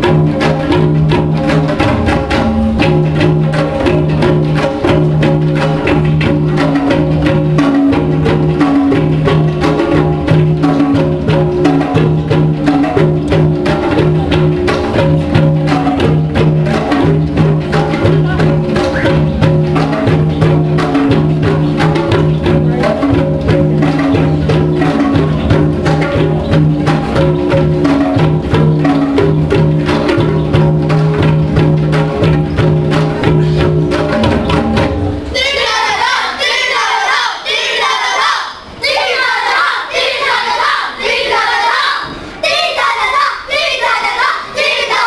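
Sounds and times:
tablas playing fast rhythm: 0.0s - 37.4s
large drum: 0.0s - 45.0s.

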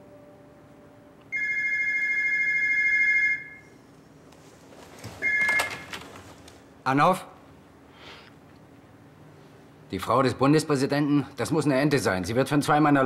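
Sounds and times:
two-tone telephone ringing: 1.3s - 3.7s, 5.2s - 5.8s.

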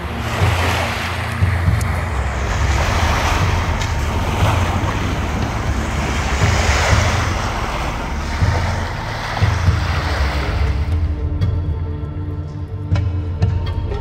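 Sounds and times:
small waves washing on sand: 0.0s - 11.0s
wind buffeting microphone: 0.0s - 12.0s.

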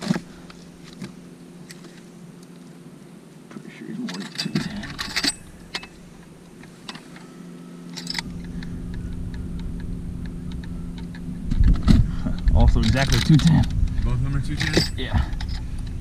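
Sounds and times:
steady low hum with rumble: 0.0s - 16.0s
metal clicks and clinks: 4.1s - 6.0s, 7.9s - 8.6s, 14.5s - 15.7s.

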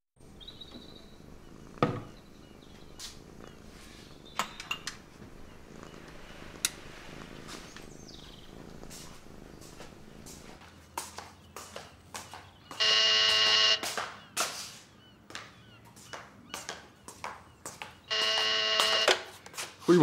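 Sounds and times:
cat purring: 0.2s - 10.6s.

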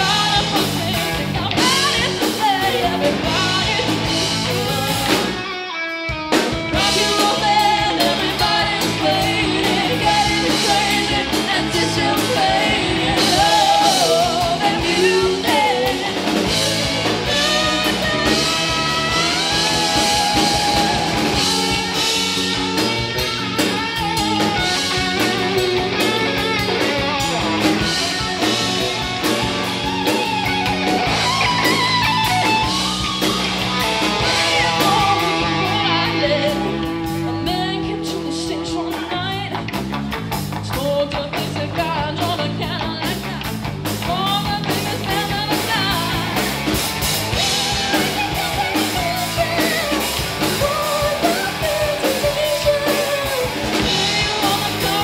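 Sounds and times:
woman singing: 0.0s - 4.2s, 6.8s - 22.0s, 34.2s - 39.6s, 40.6s - 46.4s, 47.6s - 55.0s
live rock band playing: 0.0s - 55.0s.

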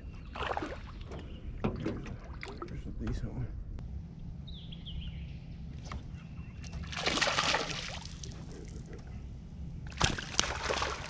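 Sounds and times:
low rumble: 0.0s - 11.0s
splash in pond water: 0.3s - 1.0s, 6.8s - 8.4s, 9.9s - 11.0s.

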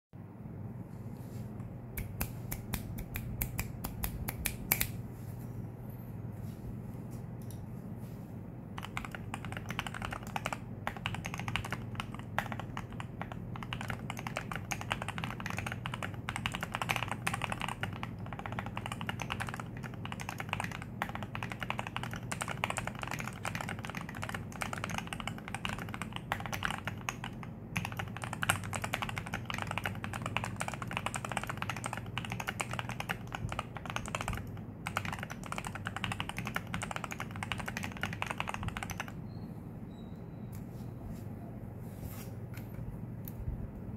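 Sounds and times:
mechanical keyboard typing: 8.8s - 39.2s.

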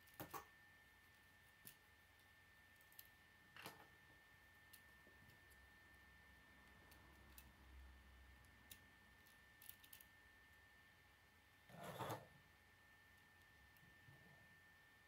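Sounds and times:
plastic scrape: 11.7s - 12.3s.

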